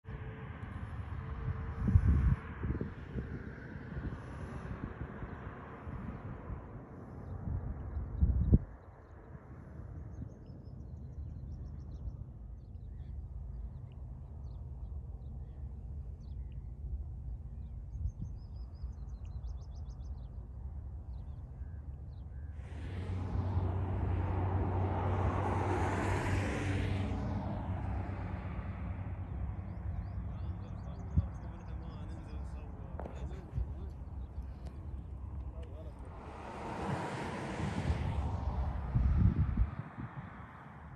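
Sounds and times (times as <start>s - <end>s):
vehicle passing on road: 0.1s - 10.2s, 22.4s - 40.9s
low outdoor rumble: 0.1s - 40.9s.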